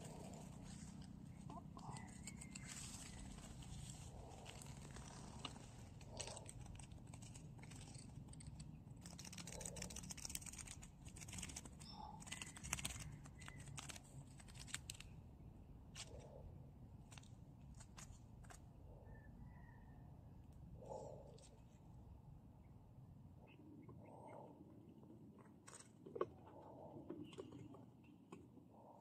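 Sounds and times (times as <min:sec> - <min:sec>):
small irregular clicks: 0:00.0 - 0:15.3, 0:17.0 - 0:18.7.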